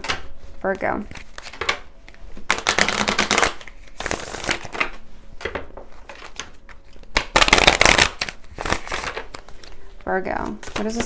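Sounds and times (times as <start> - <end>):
cards being riffle-shuffled: 1.1 - 11.0.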